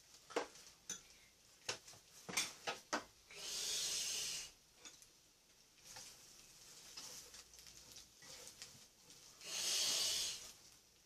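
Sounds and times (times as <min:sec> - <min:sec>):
short hiss: 0:09.4 - 0:10.6.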